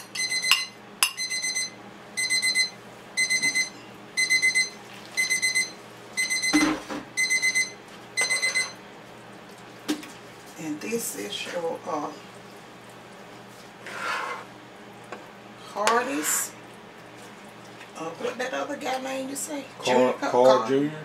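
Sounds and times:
electronic timer beeping: 0:00.2 - 0:06.6, 0:07.2 - 0:08.8.

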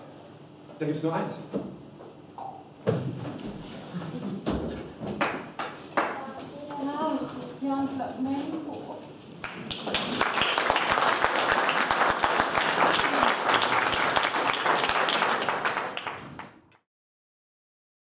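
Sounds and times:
audience applauding: 0:09.4 - 0:16.8.

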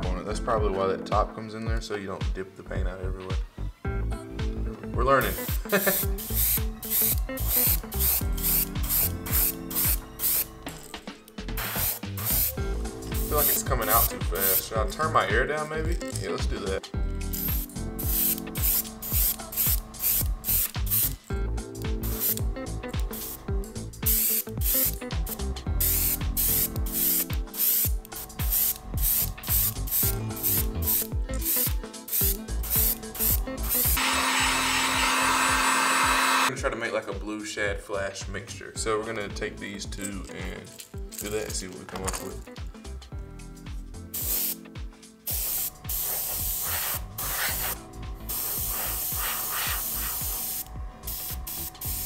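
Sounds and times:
background music with beat: 0:00.0 - 0:52.0
airbrush spraying hiss: 0:05.2 - 0:10.9, 0:11.5 - 0:14.8, 0:17.2 - 0:36.5, 0:44.1 - 0:52.0.

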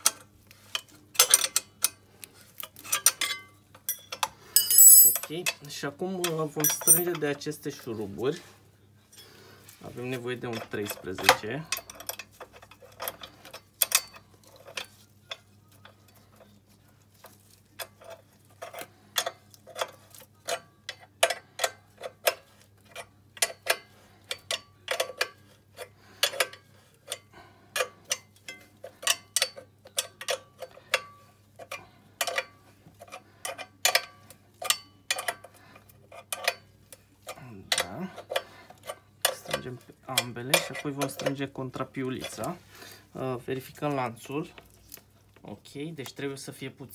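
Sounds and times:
wrench clinking on metal bolts: 0:02.8 - 0:05.6, 0:06.2 - 0:07.2.

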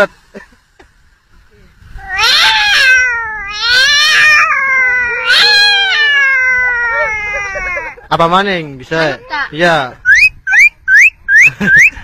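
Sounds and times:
boy imitating cat fight yowls: 0:02.0 - 0:08.0.

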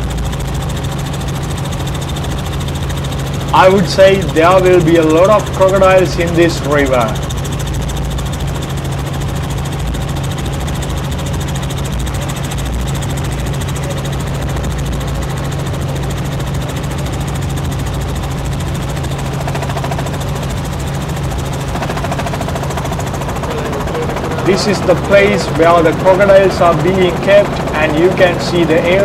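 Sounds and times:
helicopter engine and rotor drone: 0:00.0 - 0:29.0.

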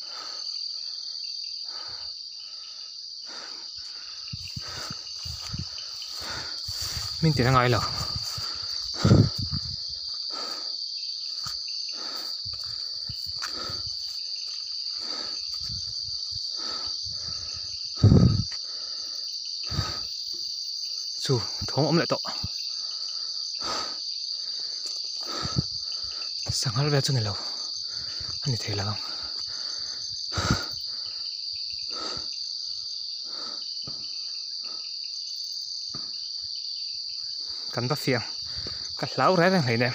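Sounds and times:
night insects chorus: 0:00.0 - 0:39.9
footsteps on concrete: 0:11.3 - 0:16.4.

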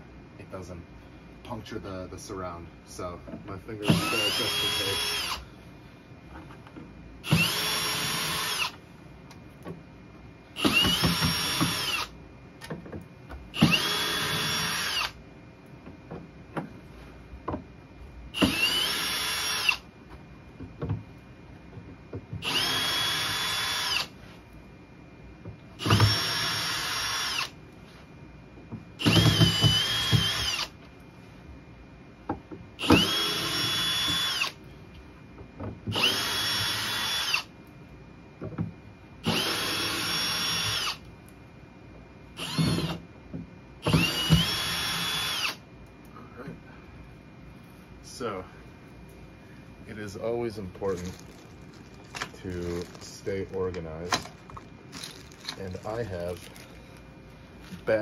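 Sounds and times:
power drill spinning: 0:03.8 - 0:05.4, 0:07.2 - 0:08.8, 0:10.6 - 0:12.2, 0:13.6 - 0:15.2, 0:18.4 - 0:19.8, 0:22.4 - 0:24.2, 0:25.8 - 0:27.6, 0:29.0 - 0:30.7, 0:32.8 - 0:34.6, 0:35.9 - 0:37.5, 0:39.2 - 0:41.0, 0:42.4 - 0:43.0, 0:43.8 - 0:45.6.

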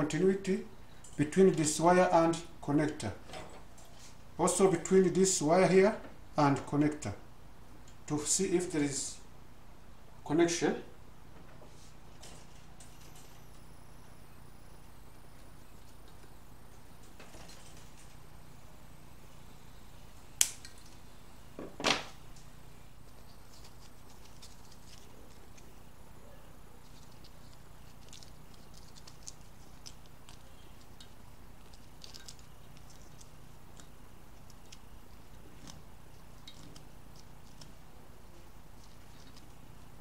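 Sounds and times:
low steady hum: 0:00.0 - 0:40.0
sandpaper scratching wire: 0:23.0 - 0:25.8.

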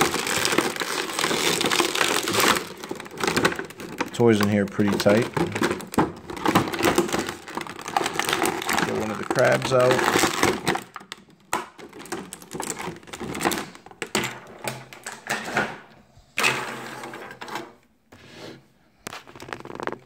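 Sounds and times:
plastic packaging crinkling: 0:00.0 - 0:14.2, 0:19.0 - 0:20.0.

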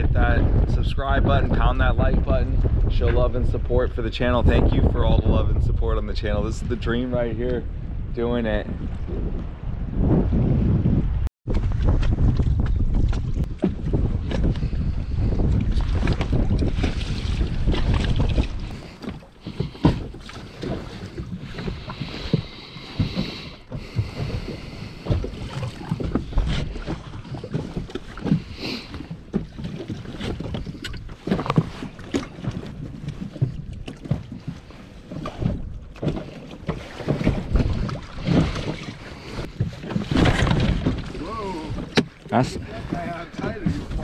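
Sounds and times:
knocks and thumps aboard dinghy: 0:00.0 - 0:44.0
wind buffeting microphone: 0:00.0 - 0:44.0.

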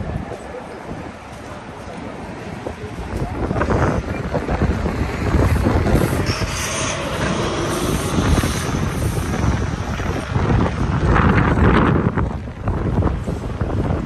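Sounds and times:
city street traffic rumble: 0:00.0 - 0:14.0
high squeal: 0:06.0 - 0:09.7.

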